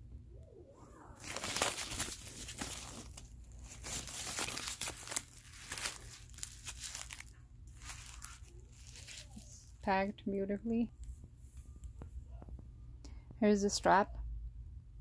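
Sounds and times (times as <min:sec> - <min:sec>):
foam wrap and paper crinkling: 0:01.2 - 0:10.0.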